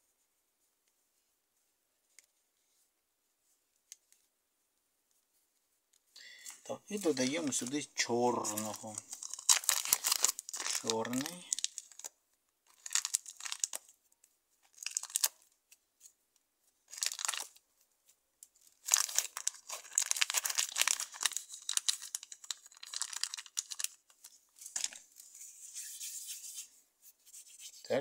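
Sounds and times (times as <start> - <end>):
plastic bag crinkling: 6.9 - 12.1, 12.7 - 13.9, 14.7 - 15.4, 16.9 - 17.6, 18.7 - 25.1.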